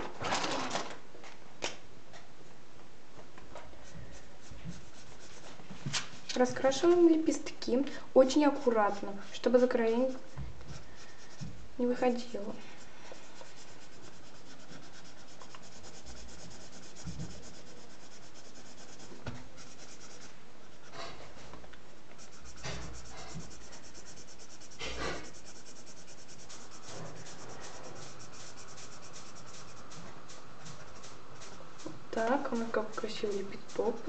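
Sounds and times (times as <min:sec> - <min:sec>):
marker scratching on paper: 0:03.8 - 0:06.2, 0:08.4 - 0:12.0, 0:12.6 - 0:21.2, 0:22.2 - 0:34.0.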